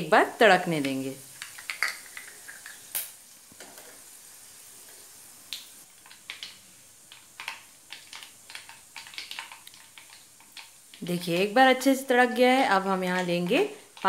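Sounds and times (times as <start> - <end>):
seeds spluttering in hot oil: 0.0 - 14.0.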